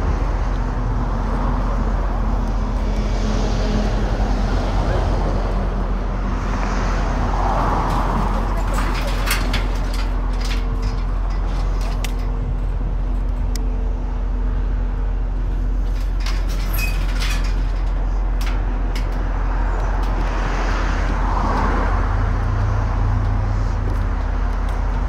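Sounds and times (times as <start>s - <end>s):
low rumble of traffic: 0.0s - 25.0s.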